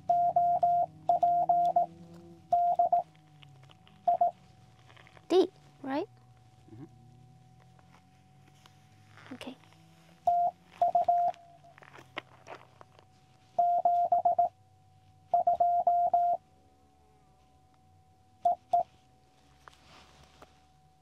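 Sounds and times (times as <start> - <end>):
morse code beeps: 0.0 - 3.1, 4.0 - 4.4, 10.2 - 11.7, 13.6 - 14.6, 15.3 - 16.4, 18.4 - 18.9
faint steady tone: 0.0 - 21.0.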